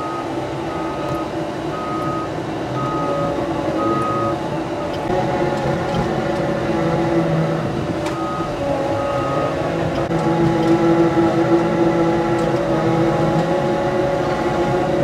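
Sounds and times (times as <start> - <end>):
diesel engine running under load: 0.0 - 15.0.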